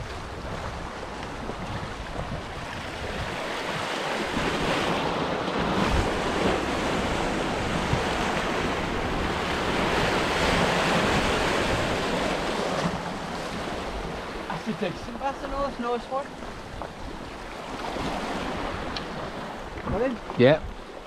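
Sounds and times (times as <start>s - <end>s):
waves washing against rocks: 0.0s - 20.6s
wind buffeting microphone: 0.0s - 21.0s.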